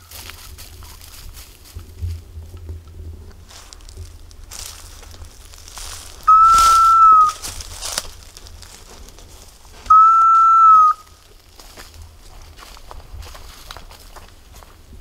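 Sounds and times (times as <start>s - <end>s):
leaves crackling underfoot: 0.0s - 15.0s
dog whistle blasts: 6.3s - 7.4s, 9.9s - 11.1s.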